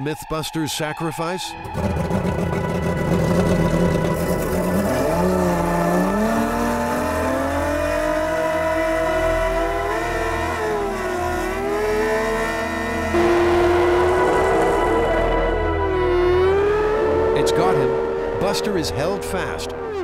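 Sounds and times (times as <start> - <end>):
outboard motor revving: 1.6 - 20.0
water gushing from pump: 1.7 - 5.0.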